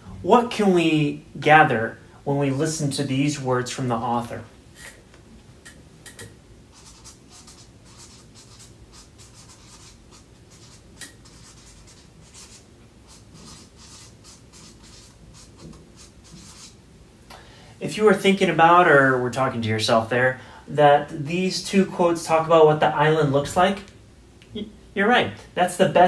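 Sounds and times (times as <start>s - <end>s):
pen scratching on paper: 6.7s - 16.8s.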